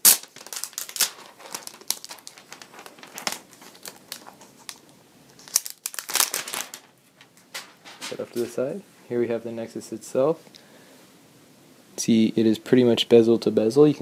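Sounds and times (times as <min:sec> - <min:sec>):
plastic film snap: 0:00.0 - 0:08.2
plastic film crinkling: 0:00.0 - 0:08.6.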